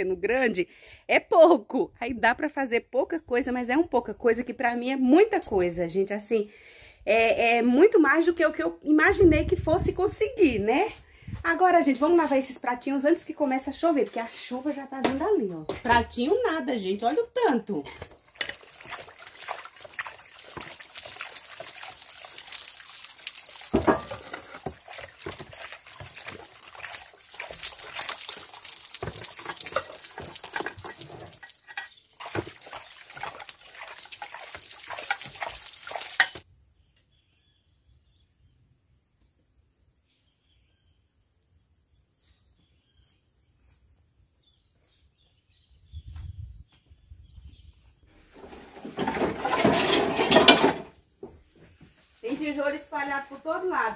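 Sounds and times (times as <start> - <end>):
running water: 18.0 - 36.4
dishes clattering: 23.8 - 24.7, 36.1 - 36.4, 48.9 - 50.9.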